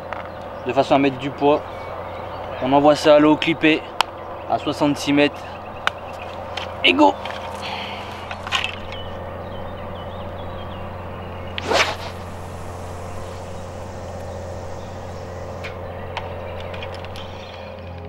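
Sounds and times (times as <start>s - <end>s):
steady low hum: 0.0s - 18.0s
fishing rod whooshing: 11.5s - 15.8s.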